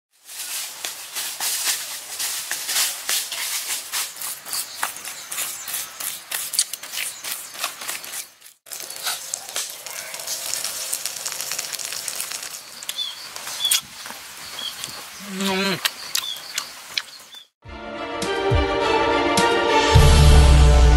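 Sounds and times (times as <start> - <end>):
crackling and rustling: 0.1 - 15.2.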